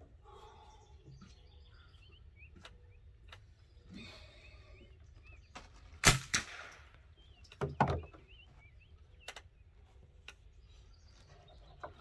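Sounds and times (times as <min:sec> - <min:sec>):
birds chirping: 0:00.0 - 0:12.0
rifle gunshots: 0:06.0 - 0:06.9.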